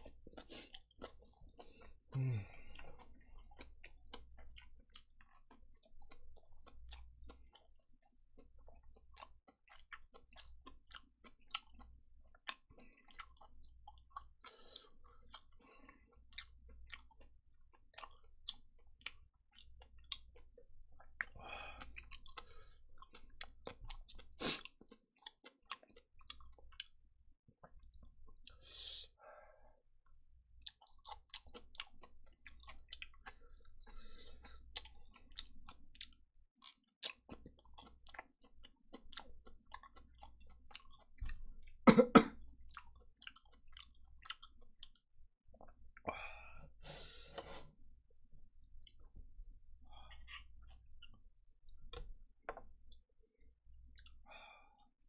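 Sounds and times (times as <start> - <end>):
close chewing: 0.0 - 27.0, 30.6 - 41.8, 42.7 - 46.1, 49.9 - 53.0, 53.9 - 54.3
loud cough: 41.9 - 42.4.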